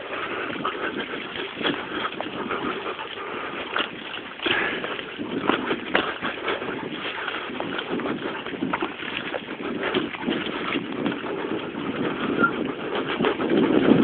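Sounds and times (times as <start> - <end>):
dog paws pattering: 0.1 - 14.0.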